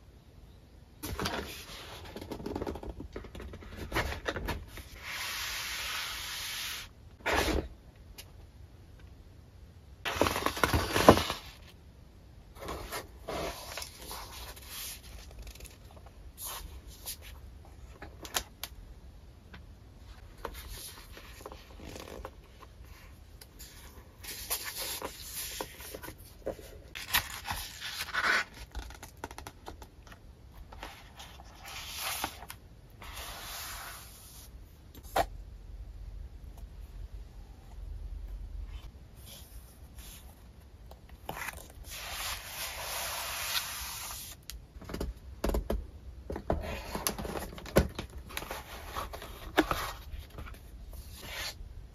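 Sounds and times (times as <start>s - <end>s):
paper and cardboard rustling: 46.4s - 51.6s.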